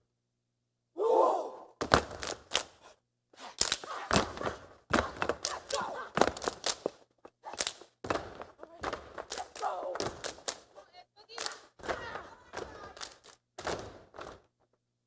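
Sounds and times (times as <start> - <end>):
body slaps: 1.8 - 2.8, 3.4 - 10.8, 11.4 - 14.4
hands clapping: 1.8 - 2.8, 3.4 - 14.4
stomps on wooden stage: 7.6 - 10.6, 11.8 - 14.5.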